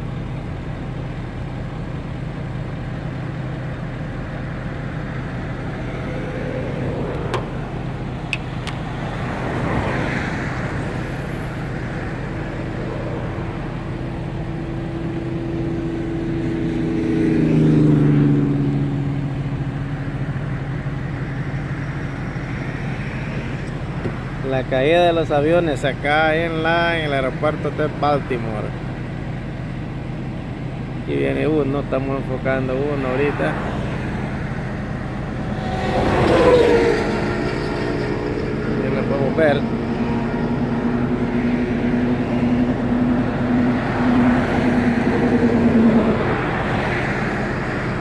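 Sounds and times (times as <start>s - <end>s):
road traffic noise: 0.0s - 48.0s
vehicle passing by: 4.2s - 20.3s, 32.4s - 48.0s.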